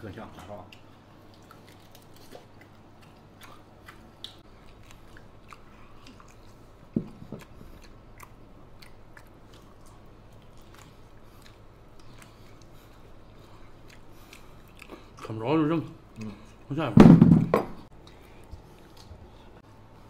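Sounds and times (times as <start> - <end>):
people chewing and gnawing: 0.2 - 16.7, 17.8 - 20.0
loud thump: 17.0 - 17.8.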